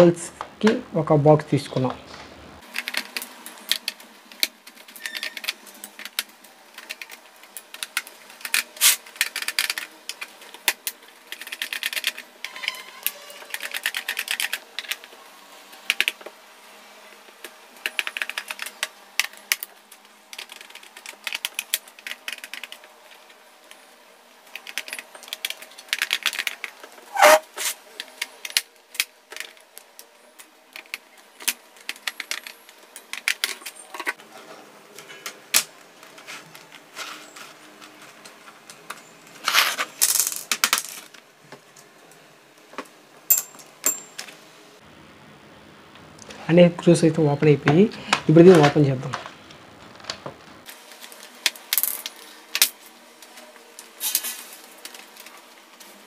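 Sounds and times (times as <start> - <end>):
screwdriver clicking and scraping: 24.5 - 27.8.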